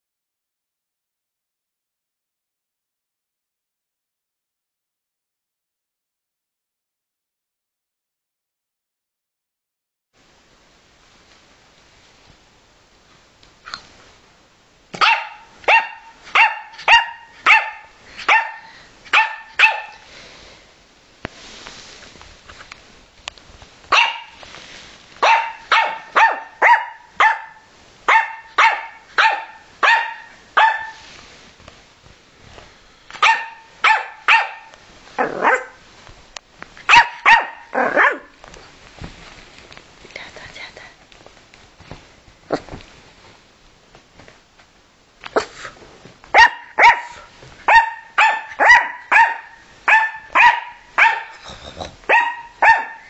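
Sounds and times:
puppy barking high-pitched: 15.0 - 20.0, 23.9 - 24.4, 25.2 - 31.0, 33.2 - 35.8, 36.8 - 38.4, 46.3 - 51.4, 52.0 - 53.0.

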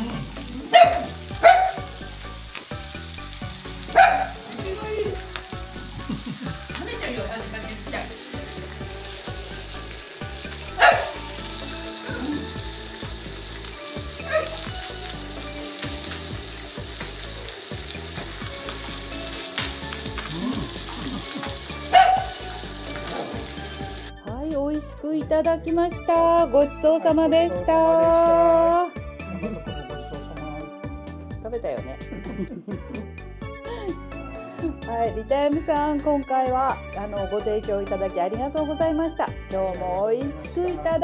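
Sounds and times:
chicken skin sizzling in pan: 0.0 - 24.1.

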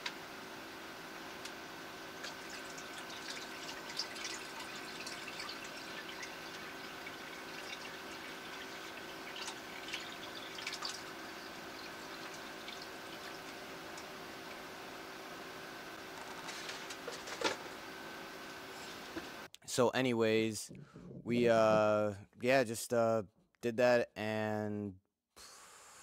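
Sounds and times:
steady low hum: 0.0 - 22.4
water trickling into aquarium: 2.1 - 15.0
small water splashes: 2.2 - 13.7.

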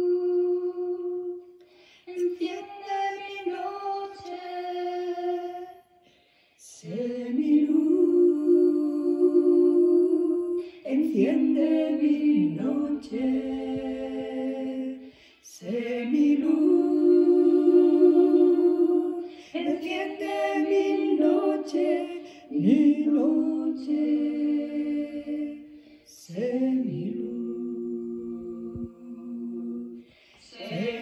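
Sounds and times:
breaths: 1.6 - 2.1, 5.9 - 6.7, 10.6 - 10.9, 15.0 - 15.5, 19.2 - 19.6, 22.2 - 22.5, 25.6 - 26.2, 30.0 - 30.5
woman singing a hymn: 2.1 - 5.8.

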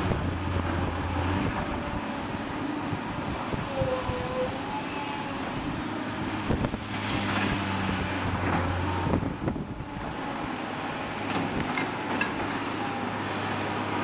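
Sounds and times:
diesel excavator engines droning: 0.0 - 14.0
wind on microphone: 2.8 - 4.8, 5.4 - 10.3.

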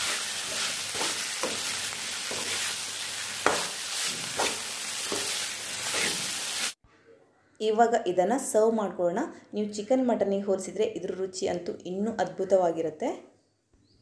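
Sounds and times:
spatula scraping a pan: 0.0 - 6.7
food sizzling in a pan: 0.0 - 6.8.

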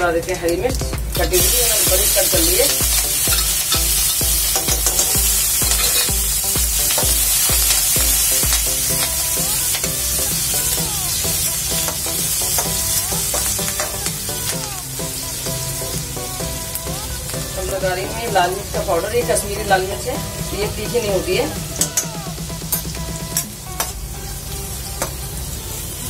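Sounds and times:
background music: 0.0 - 26.0
spices sizzling in hot oil: 0.0 - 26.0
spatula scraping pan: 1.3 - 6.2.

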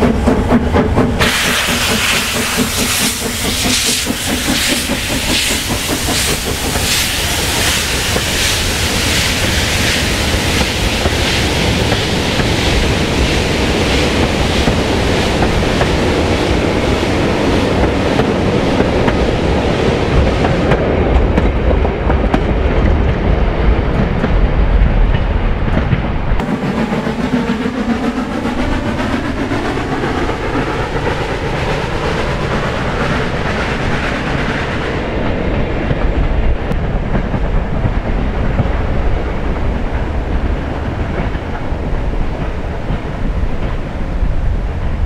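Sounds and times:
steam locomotive exhaust chuffs: 0.0 - 20.9.

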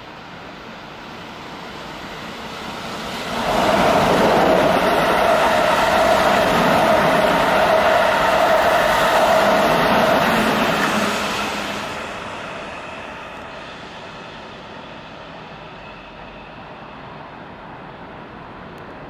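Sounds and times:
train wheels rushing on rails: 0.0 - 19.0.

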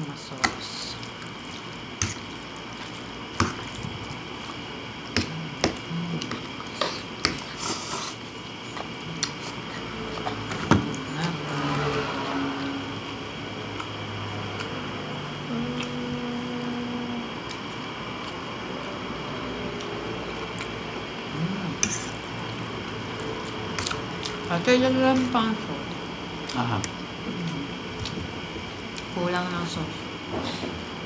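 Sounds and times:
wet squishy eating sounds: 0.4 - 11.0, 17.3 - 24.5, 25.8 - 29.1.

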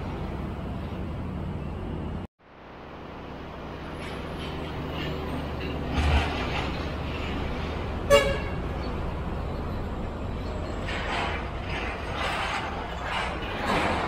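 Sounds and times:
truck and motorbike traffic rumble: 0.0 - 14.0
vehicles passing: 0.0 - 14.0
vehicle horn toot: 8.1 - 8.6.

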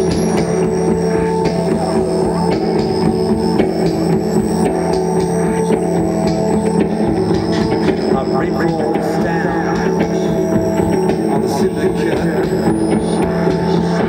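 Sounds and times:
rock band guitar drone: 0.0 - 14.0.

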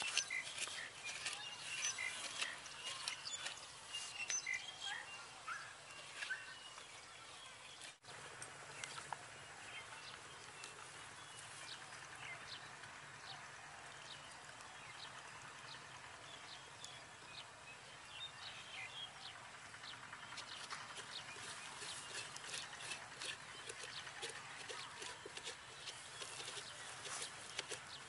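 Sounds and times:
metal spoon scraping watermelon: 0.0 - 3.6, 20.6 - 28.0
birds chirping: 0.0 - 28.0.

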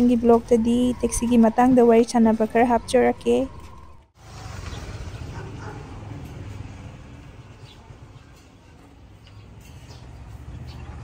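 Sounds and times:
car engine and road noise: 2.4 - 11.0.

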